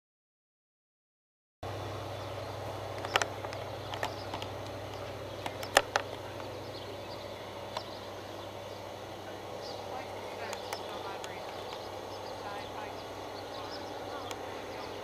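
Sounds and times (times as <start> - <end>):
steady low hum: 1.6 - 15.0
sharp clicks: 2.9 - 8.0, 10.4 - 15.0.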